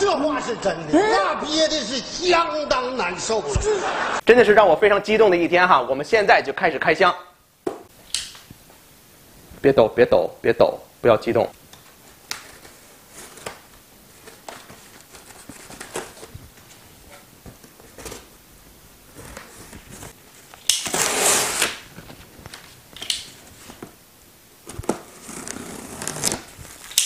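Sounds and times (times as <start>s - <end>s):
scraping of tape and cardboard: 19.1s - 21.8s, 24.8s - 27.0s
knife slitting packing tape: 20.6s - 21.8s.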